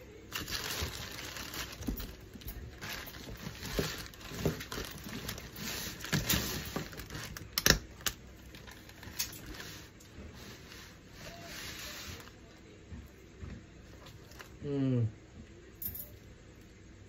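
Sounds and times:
plastic bag crinkling: 0.2s - 9.9s.

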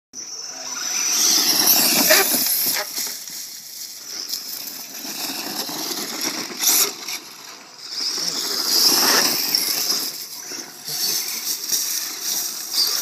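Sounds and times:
high electric motor whine: 0.2s - 3.2s
tyres scrabbling on gravel: 1.0s - 13.0s.

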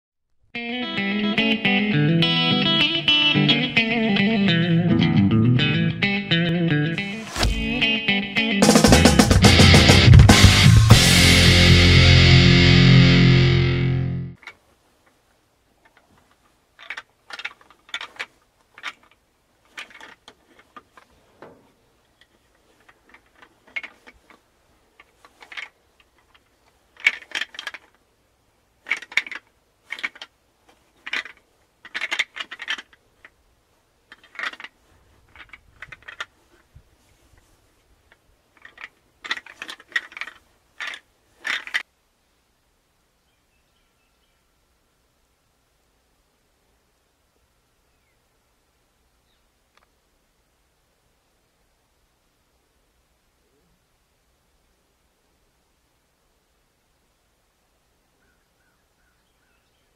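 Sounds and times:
deer rattling call clattering: 15.8s - 28.2s, 28.8s - 41.9s.

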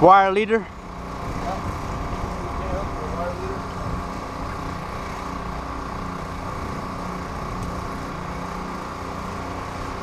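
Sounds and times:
generator engine droning: 0.0s - 10.0s.

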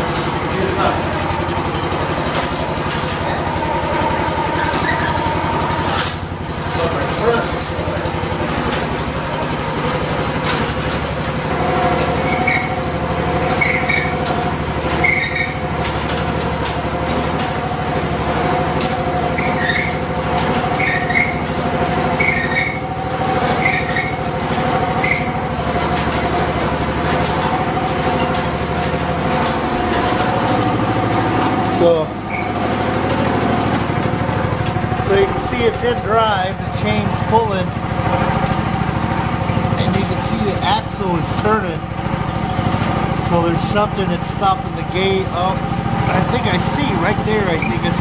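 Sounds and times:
small gasoline engine running: 0.0s - 48.0s
short high squeak: 14.9s - 15.6s, 22.2s - 22.8s, 25.0s - 25.4s, 32.3s - 32.6s.

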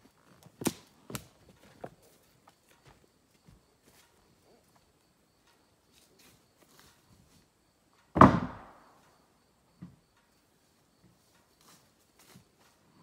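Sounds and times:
heavy thud: 8.1s - 8.9s.

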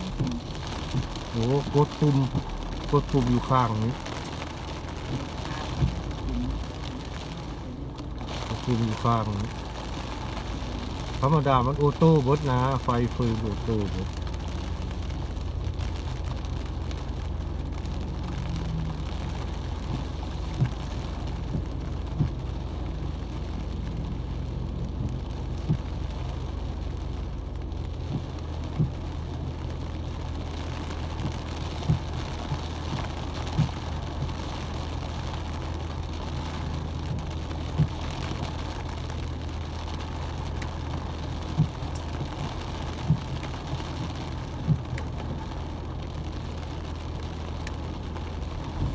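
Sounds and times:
idling engine hum: 0.0s - 48.9s
rain on car windshield: 0.0s - 48.9s.

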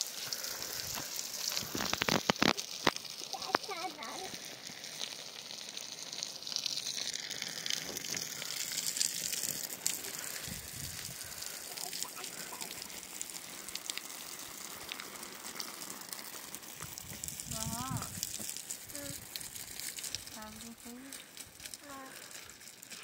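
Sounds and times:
rain falling on soil and grass: 0.0s - 23.0s.

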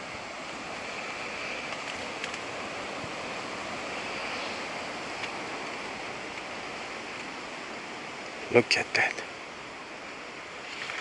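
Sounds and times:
outdoor background hiss: 0.0s - 11.0s
faint clicks: 1.6s - 2.5s, 5.1s - 6.5s.

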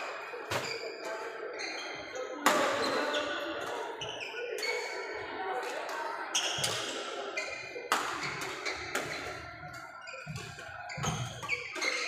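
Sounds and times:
racket hitting shuttlecock: 7.9s - 9.3s.

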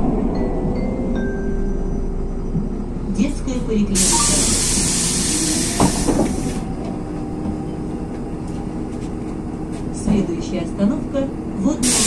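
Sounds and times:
bus low hum: 0.0s - 12.0s
compressed air hissing: 4.0s - 6.6s.

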